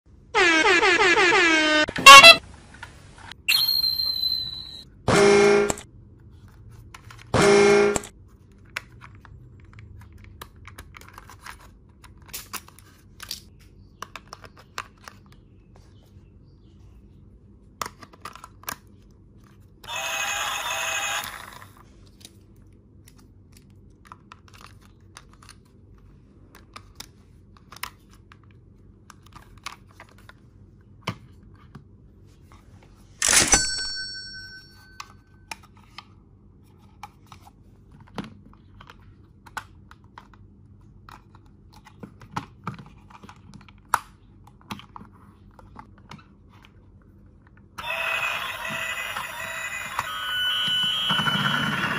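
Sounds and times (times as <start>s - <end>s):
toy electronic horn: 0.3s - 2.4s, 3.5s - 5.8s, 7.4s - 8.1s, 19.8s - 21.6s, 47.8s - 51.9s
high ringing tone: 3.5s - 4.8s, 33.2s - 35.3s, 47.8s - 51.9s.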